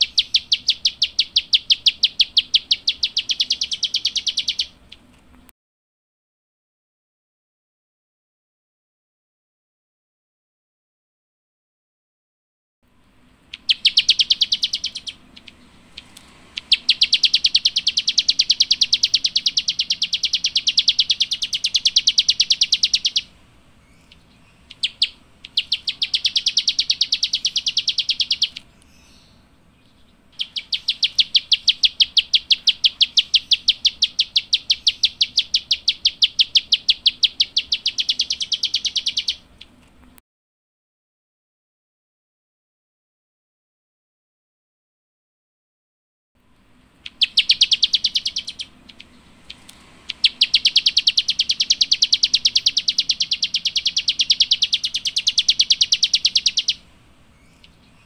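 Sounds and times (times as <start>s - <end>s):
songbird chattering: 0.0s - 5.1s, 13.4s - 39.8s, 46.8s - 58.0s.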